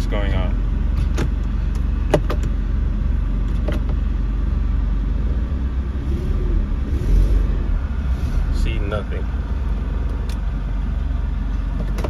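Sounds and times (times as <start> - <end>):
car engine rumbling: 0.0 - 12.0.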